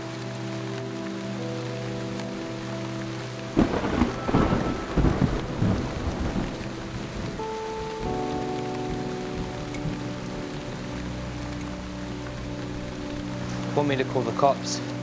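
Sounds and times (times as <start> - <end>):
soft music with held chords: 0.0 - 15.0
steady rain: 0.0 - 15.0
thunder clap rumbling: 3.5 - 11.0.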